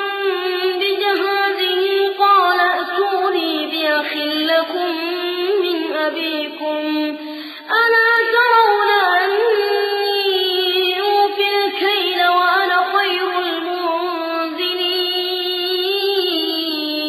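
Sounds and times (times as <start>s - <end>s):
boy reciting melodically: 0.0s - 17.0s.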